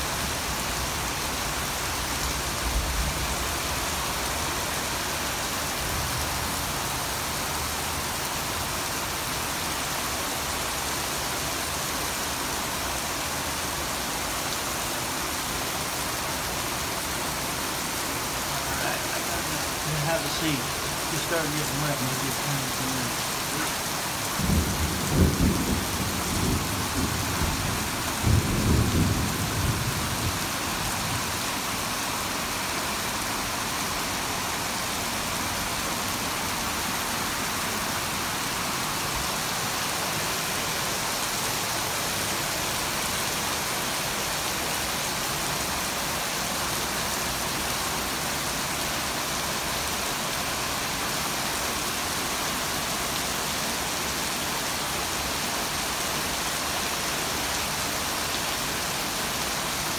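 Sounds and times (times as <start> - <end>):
heavy rain pouring: 0.0 - 59.9
thunder rumbling: 24.4 - 30.4.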